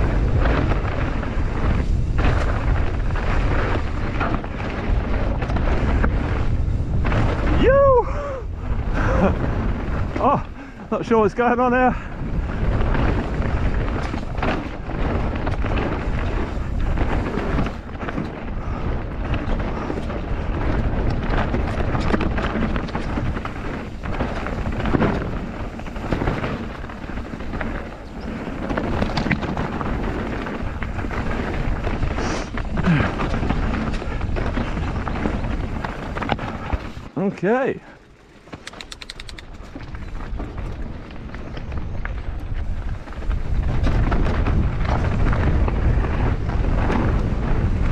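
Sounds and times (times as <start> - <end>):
bike knocks and rattles: 0.0 - 7.5, 12.0 - 37.1, 38.2 - 47.9
tyres rumbling over stones: 0.0 - 47.9.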